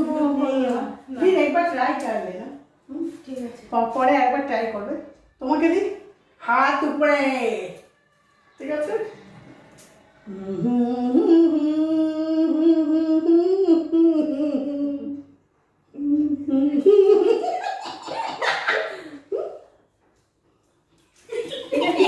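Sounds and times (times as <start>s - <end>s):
woman humming: 10.2s - 17.0s.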